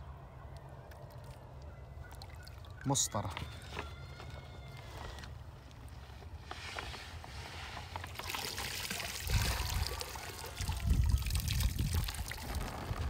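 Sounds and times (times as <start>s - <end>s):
pond water sloshing: 0.8s - 3.9s, 7.4s - 13.0s
water trickling and pouring: 8.0s - 13.0s.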